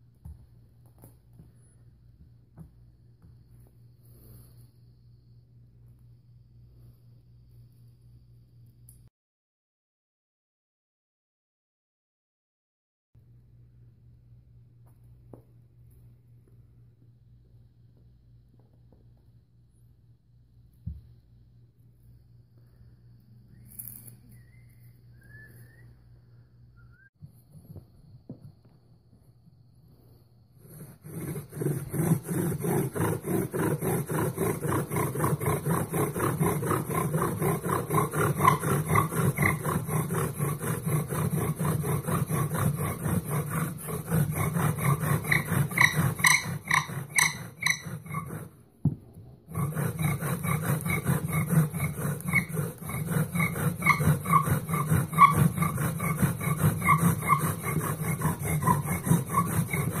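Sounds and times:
bow drill spindle grinding and squeaking: 30.6 - 48.6, 49.5 - 60.0.

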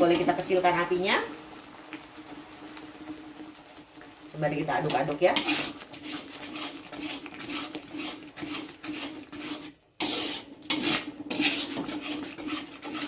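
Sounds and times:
metal spatula scraping a wok: 4.8 - 13.0.

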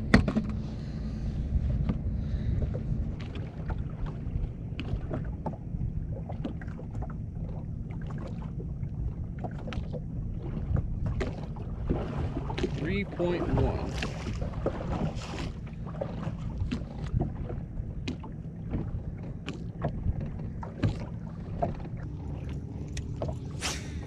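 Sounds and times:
wind buffeting the microphone: 0.0 - 7.1
waves lapping at boat hull: 0.0 - 24.0.

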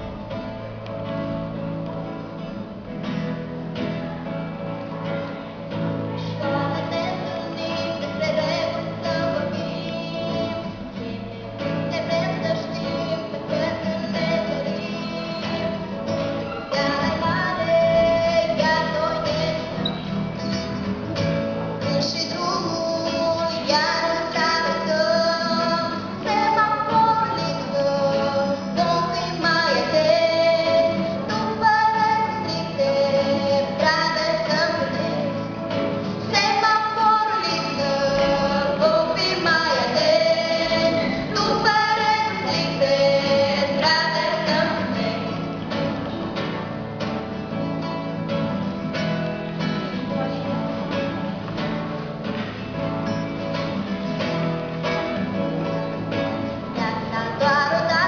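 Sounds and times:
acoustic guitar: 0.0 - 58.0
girls singing: 6.1 - 19.9, 21.8 - 46.2, 56.7 - 58.0.

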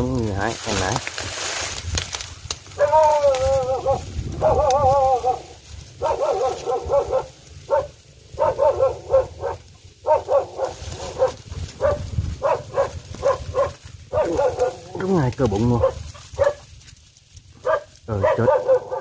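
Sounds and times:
dog barking: 2.8 - 3.0, 3.6 - 5.4, 6.0 - 15.0, 15.7 - 16.7, 17.6 - 19.0
dog whining: 2.8 - 5.4.

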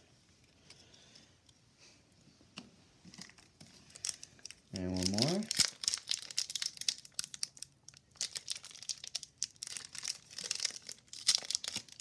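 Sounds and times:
plastic wrapper crinkling: 3.2 - 12.0.

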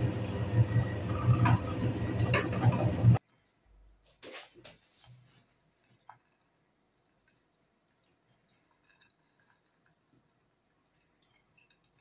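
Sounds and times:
meat grinder humming: 0.0 - 3.2.

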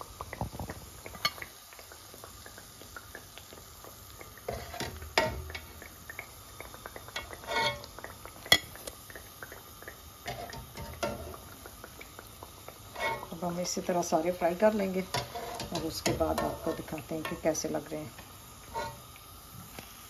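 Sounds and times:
deep-frying sizzle: 0.0 - 20.0
metal skimmer scraping a pan: 4.5 - 5.7, 7.2 - 8.7, 10.3 - 11.4, 12.9 - 13.5, 14.9 - 19.1.

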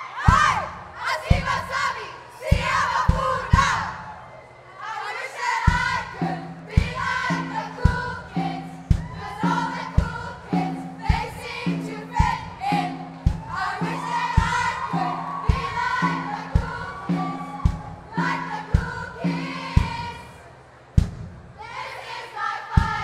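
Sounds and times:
group of voices singing: 0.2 - 4.2, 4.8 - 20.5, 21.6 - 23.0
backing track with bass drum beat: 5.7 - 20.2.

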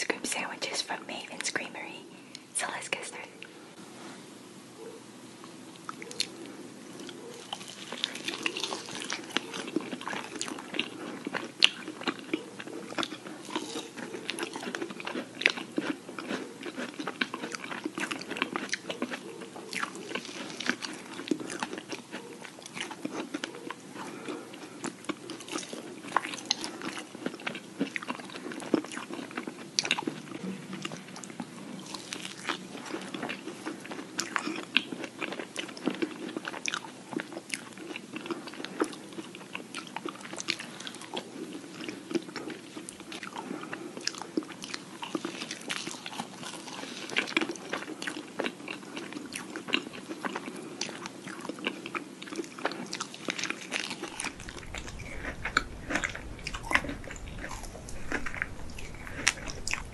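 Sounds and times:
soft chewing: 4.8 - 59.9
crisp crunching bites: 7.4 - 19.2, 51.6 - 59.9.

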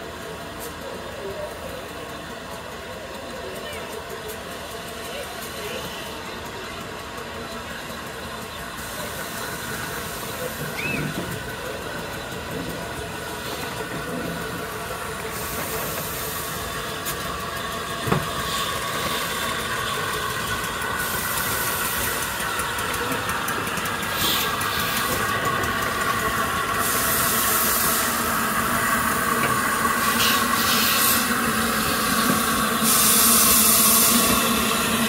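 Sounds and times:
steam locomotive moving slowly: 0.0 - 35.0
steam hiss: 8.6 - 35.0.

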